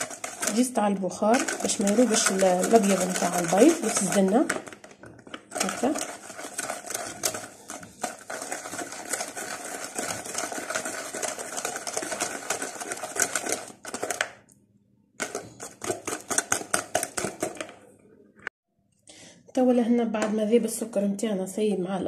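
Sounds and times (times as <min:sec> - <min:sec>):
hand whisk clicking against bowl: 0:15.2 - 0:17.7.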